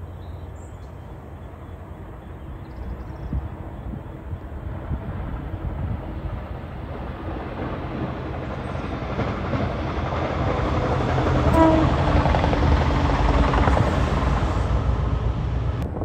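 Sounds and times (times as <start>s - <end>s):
locomotive engine and wheels rumbling: 0.0s - 16.0s
train horn blast: 11.5s - 12.2s.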